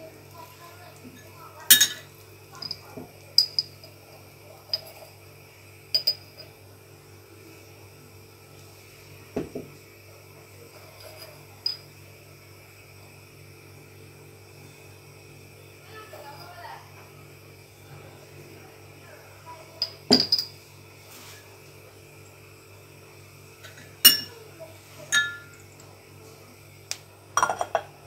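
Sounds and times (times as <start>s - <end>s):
low steady hum: 0.0s - 28.0s
glassy clinks of dishes and utensils: 1.2s - 2.8s, 19.8s - 20.6s, 23.6s - 24.3s, 25.1s - 25.6s.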